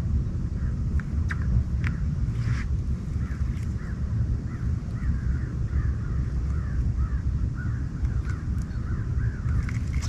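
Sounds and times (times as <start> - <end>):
steady low rumble: 0.0 - 10.0
birds calling: 0.5 - 10.0.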